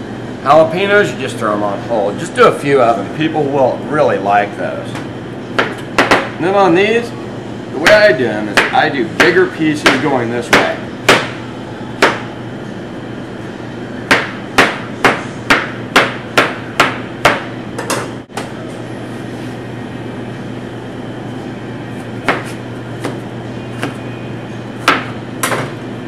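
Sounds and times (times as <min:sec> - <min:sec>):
steady low hum: 0:00.0 - 0:26.0
knife chopping on cutting board: 0:22.2 - 0:23.2, 0:24.8 - 0:25.7.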